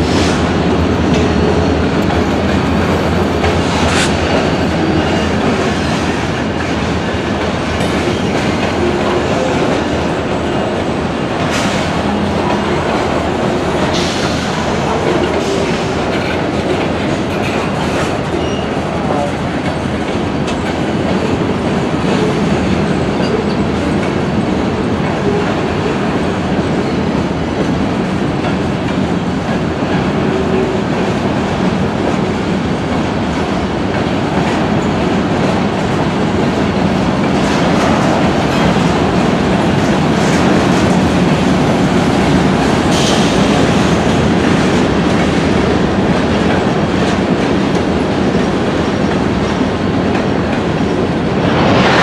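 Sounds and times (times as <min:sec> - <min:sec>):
freight train wheels clattering: 0:00.0 - 0:52.0.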